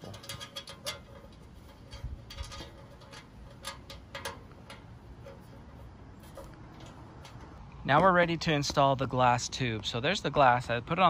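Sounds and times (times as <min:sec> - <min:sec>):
light metal clicks: 0:00.0 - 0:08.2.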